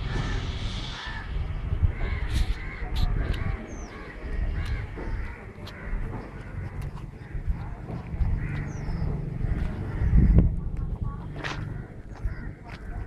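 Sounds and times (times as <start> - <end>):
crows cawing: 0.0 - 10.6, 11.4 - 13.0
low rumble: 0.0 - 13.0.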